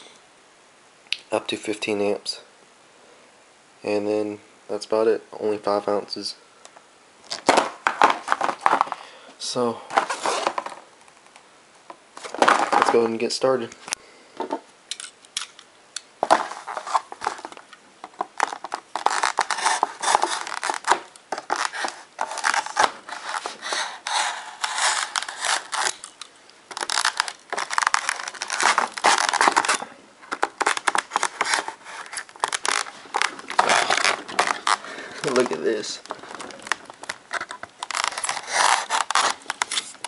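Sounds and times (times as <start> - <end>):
knife cutting hard plastic: 16.2 - 40.0.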